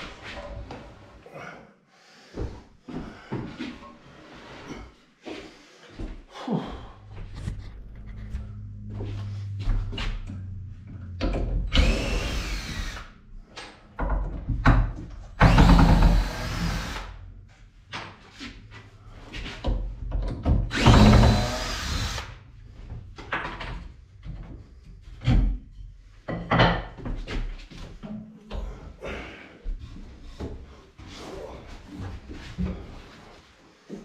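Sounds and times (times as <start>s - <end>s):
cordless drill driving screws: 11.7s - 13.1s, 15.4s - 17.1s, 20.7s - 22.3s.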